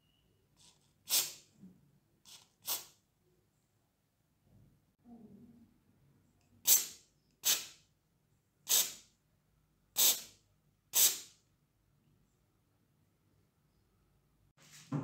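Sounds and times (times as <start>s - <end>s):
aerosol spray hissing bursts: 1.1s - 1.4s, 2.3s - 3.0s, 6.7s - 7.8s, 8.7s - 9.0s, 10.0s - 10.4s, 11.0s - 11.3s.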